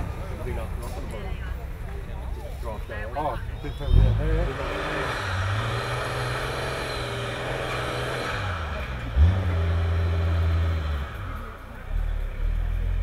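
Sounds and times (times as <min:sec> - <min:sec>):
truck engine at high revs: 0:03.8 - 0:13.0.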